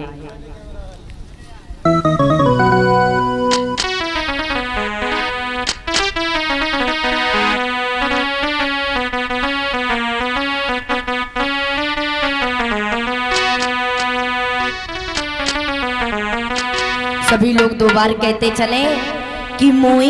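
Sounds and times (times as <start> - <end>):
keyboard melody of held notes: 1.8 - 19.9
sharp hits: 16.5 - 18.7.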